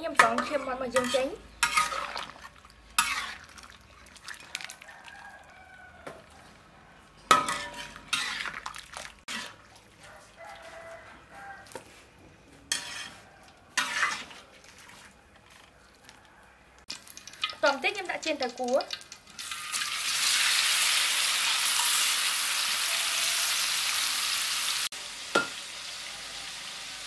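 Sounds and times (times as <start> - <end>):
wire skimmer scraping metal wok: 0.0 - 3.6, 7.3 - 8.7, 9.3 - 9.7, 12.6 - 15.7.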